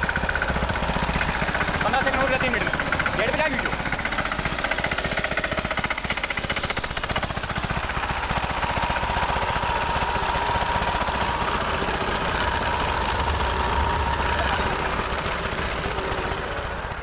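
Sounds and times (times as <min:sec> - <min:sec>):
tractor diesel engine knocking: 0:00.0 - 0:17.0
steady high tone: 0:08.9 - 0:17.0.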